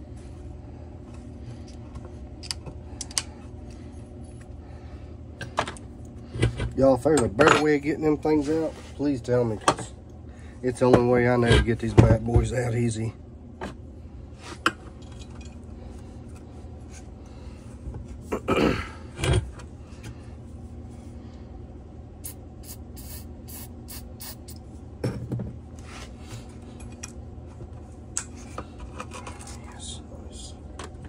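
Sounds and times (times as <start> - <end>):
low shop hum: 0.0 - 31.0
spray can squirts: 22.2 - 24.6.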